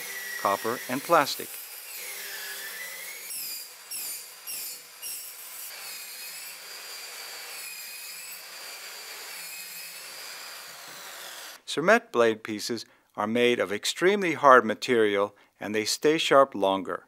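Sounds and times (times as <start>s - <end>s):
electric pipe saw cutting pipe: 0.0s - 11.6s.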